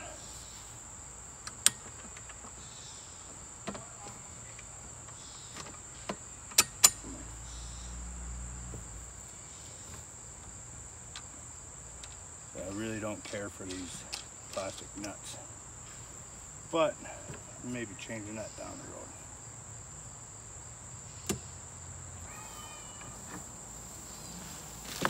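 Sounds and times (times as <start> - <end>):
insects trilling: 0.0 - 25.0
bolt hardware clicking: 6.4 - 7.0.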